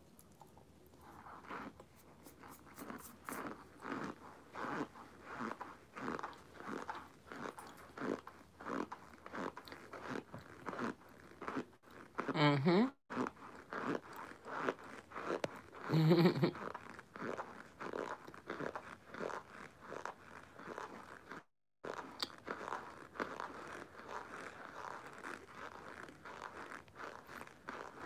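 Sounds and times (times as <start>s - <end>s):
person chewing crunchily: 0.1s - 12.4s, 13.1s - 28.0s
person humming: 12.4s - 12.9s.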